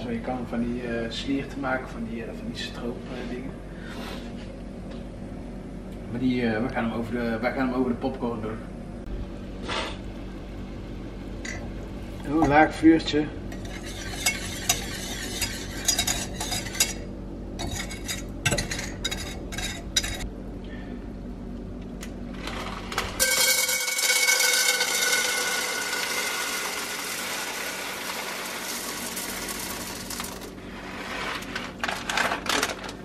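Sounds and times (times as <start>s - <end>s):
whisk scraping a saucepan: 13.5s - 20.2s, 23.2s - 31.9s
popcorn kernels poured into pan: 22.5s - 30.6s
oil sizzling: 22.6s - 30.7s.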